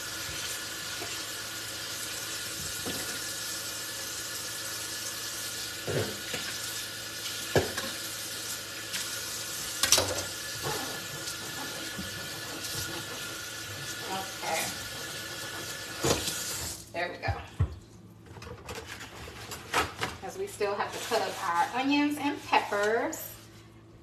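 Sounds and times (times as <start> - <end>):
tap water running into sink: 0.0 - 16.8.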